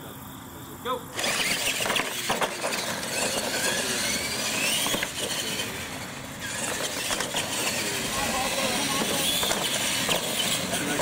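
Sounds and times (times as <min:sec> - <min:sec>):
toy truck motors whining: 0:01.1 - 0:11.0
trucks knocking on ground: 0:06.4 - 0:11.0.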